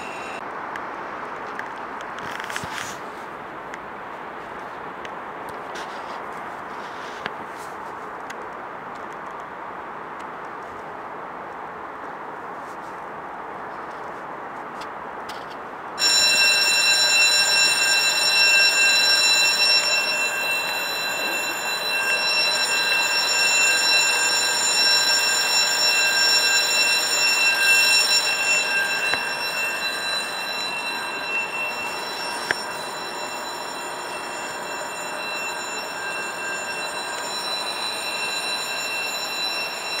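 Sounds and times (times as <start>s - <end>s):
electric train running: 0.0s - 0.4s, 16.0s - 40.0s
high-pitched train whine: 0.0s - 0.4s, 16.0s - 40.0s.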